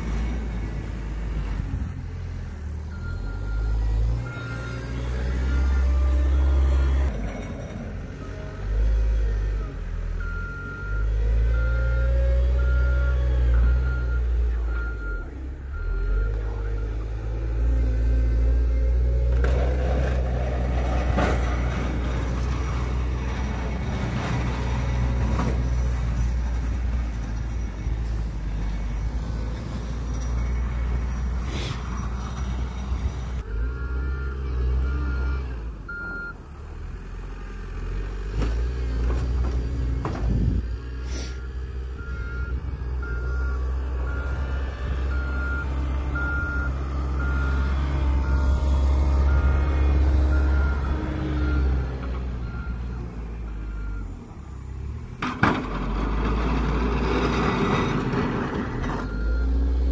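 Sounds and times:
diesel engine under load: 0.0 - 59.9
reversing alarm beeps: 2.9 - 7.0, 33.6 - 36.4, 41.4 - 44.5, 45.1 - 53.0, 59.0 - 59.6.

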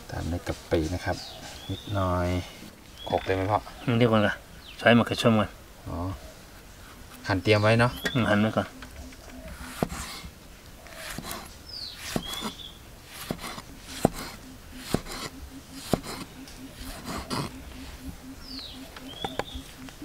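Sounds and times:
knife slicing tomato: 10.9 - 17.5.

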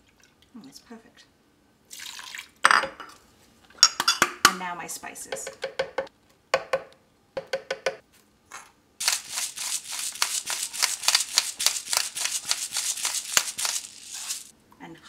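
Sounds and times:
pepper mill grinding: 9.0 - 14.5.

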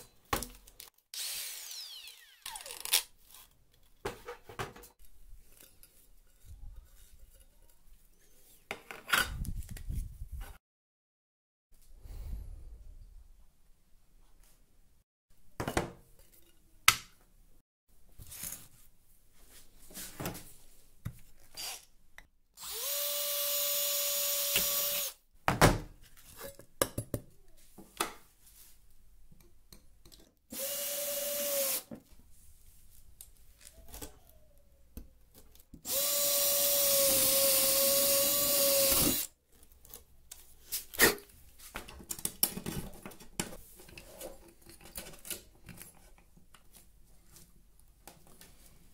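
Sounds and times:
cordless drill drilling metal: 1.2 - 3.1, 21.6 - 21.9, 22.6 - 25.2, 30.5 - 31.9, 35.9 - 39.3.

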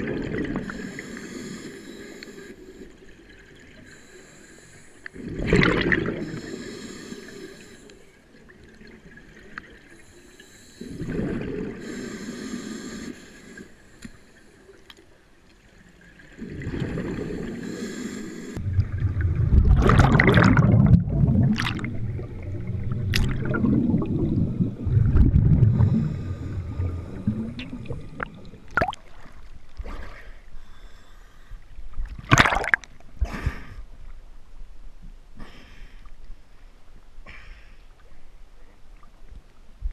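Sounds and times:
regulator bubbles gurgling underwater: 0.0 - 1.0, 5.1 - 6.5, 10.9 - 12.0, 16.0 - 17.7, 18.6 - 29.6, 32.0 - 33.0
water splashes and knocks: 23.1 - 23.7.

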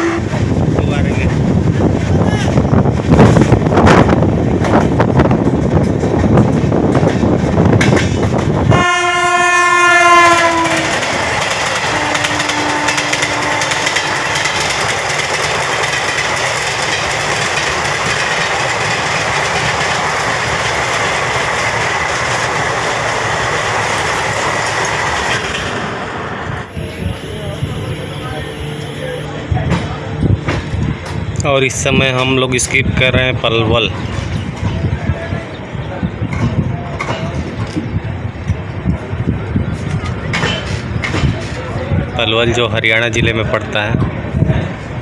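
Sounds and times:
train horn: 0.0 - 0.4, 8.7 - 11.1, 11.8 - 14.5
train running noise and wind: 0.0 - 45.0.

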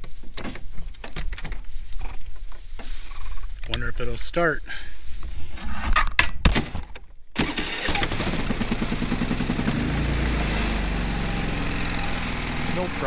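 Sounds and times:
generator engine running: 7.4 - 13.0.

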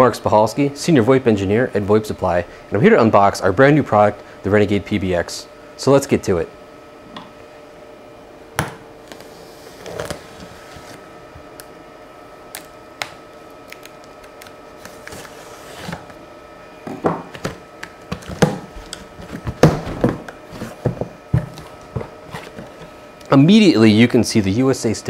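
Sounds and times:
faint steady hum: 0.0 - 25.0
cardboard rustling and knocks: 16.9 - 22.8.

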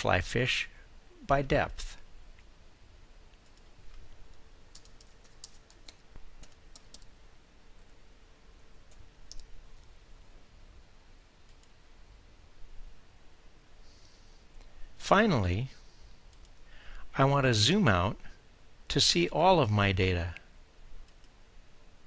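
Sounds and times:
faint steady hum: 0.0 - 22.0
computer keyboard typing: 4.7 - 7.1, 8.9 - 9.9.

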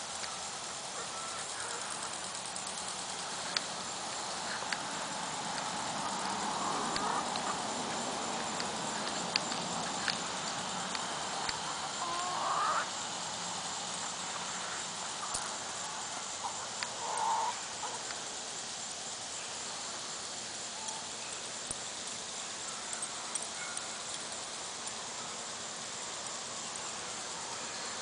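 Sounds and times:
chicken clucking: 6.0 - 7.6, 11.5 - 12.9
chicken squawk: 6.6 - 7.6, 11.8 - 12.9, 16.4 - 18.0.

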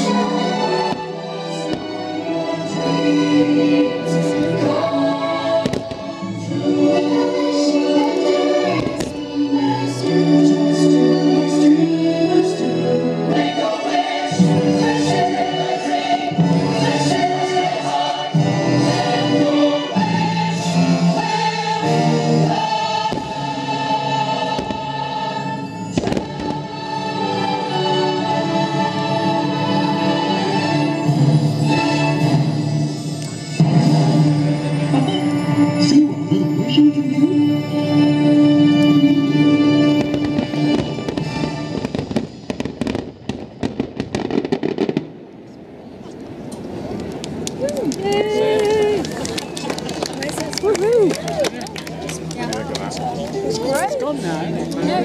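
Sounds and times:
orchestral music: 0.0 - 45.2, 48.0 - 55.0
choir singing sustained chords: 0.0 - 45.4
fireworks bangs: 24.5 - 24.9, 26.0 - 26.6, 40.0 - 45.3.

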